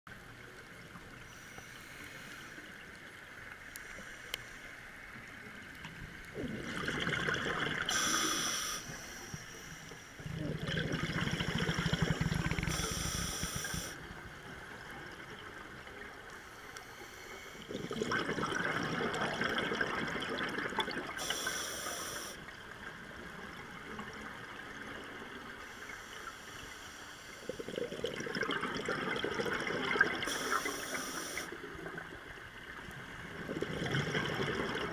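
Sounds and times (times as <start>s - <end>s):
faint water hiss: 0.1s - 34.9s
exhaled bubbles rumbling: 6.2s - 8.0s, 10.2s - 12.8s, 17.7s - 21.2s, 27.4s - 30.3s, 31.6s - 34.9s
diver inhaling through regulator: 7.7s - 14.0s, 21.2s - 22.4s, 30.2s - 31.6s.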